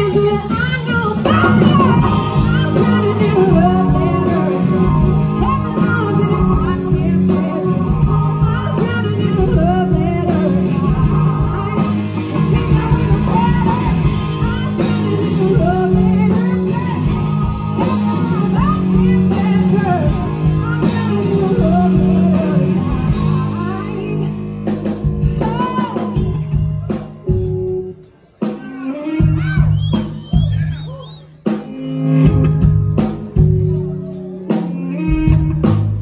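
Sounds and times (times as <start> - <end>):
woman singing: 0.0 - 27.0
bass: 0.0 - 36.0
drums: 0.0 - 36.0
electric guitar: 0.0 - 36.0.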